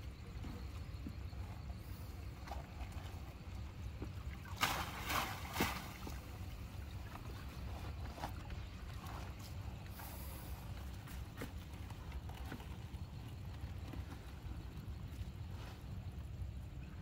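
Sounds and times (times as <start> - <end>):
water sloshing against hull: 0.0 - 17.0
net splashing and rustling: 4.4 - 6.4.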